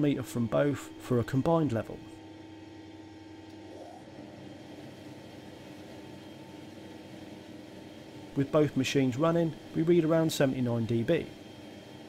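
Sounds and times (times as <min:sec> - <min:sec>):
planer and dust extractor humming: 0:03.5 - 0:12.0.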